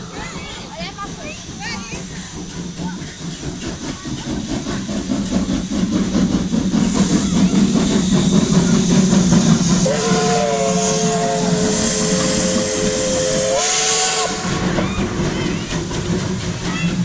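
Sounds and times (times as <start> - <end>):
steam hiss: 0.0 - 17.0
steam locomotive exhaust beats: 0.0 - 17.0
steam whistle chord: 9.8 - 14.6.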